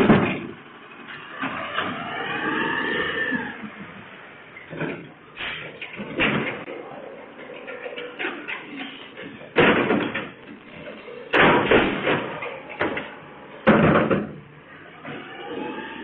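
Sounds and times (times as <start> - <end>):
loud bangs of bin emptying: 11.3 - 13.0.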